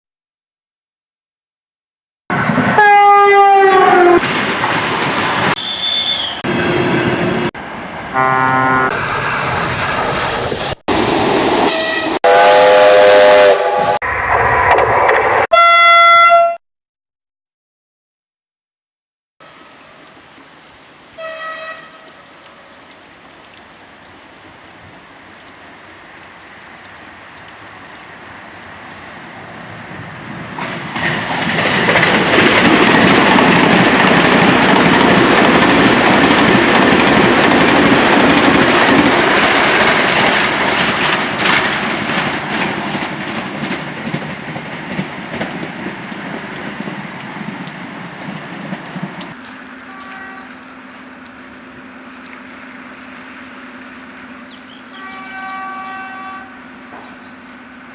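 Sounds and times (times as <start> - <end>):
high whine of train: 2.3 - 15.8, 27.1 - 57.9
train horn blast: 2.7 - 4.2, 8.1 - 9.0, 11.7 - 14.0, 15.5 - 16.6, 21.2 - 22.4, 49.6 - 50.9, 54.9 - 56.8
train wheels rushing on rails: 3.5 - 8.0, 29.6 - 50.5.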